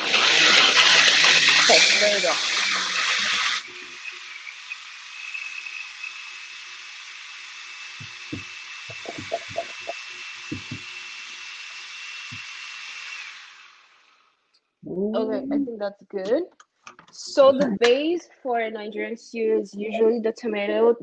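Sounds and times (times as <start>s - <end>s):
electric blender whining: 0.0s - 14.5s
soft knocks: 10.5s - 10.9s.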